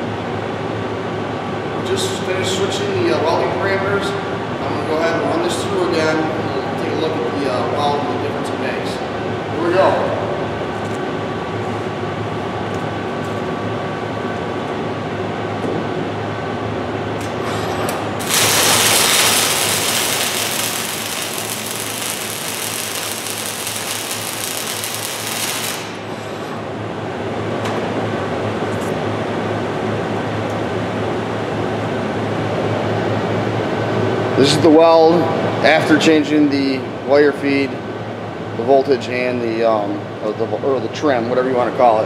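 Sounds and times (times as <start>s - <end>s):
machine hum: 9.0s - 34.4s
welding arc hissing: 18.2s - 26.6s.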